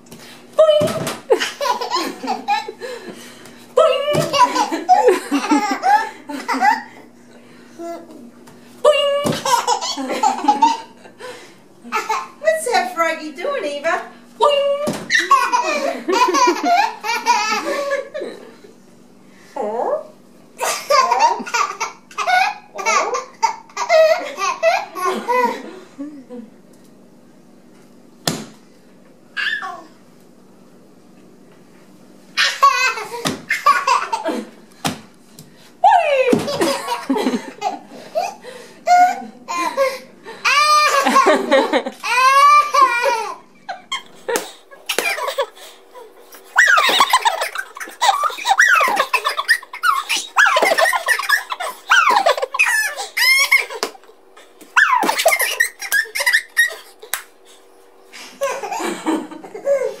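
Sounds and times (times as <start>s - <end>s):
toddler and woman laughing: 0.6s - 2.8s, 3.8s - 7.0s, 8.8s - 11.0s, 15.1s - 18.5s, 20.6s - 26.4s, 32.4s - 34.6s, 36.3s - 44.1s, 44.9s - 45.6s, 46.6s - 53.9s, 54.8s - 57.0s, 58.4s - 60.0s
toddler squealing with laughter: 29.4s - 29.9s, 46.6s - 53.7s, 54.8s - 56.9s.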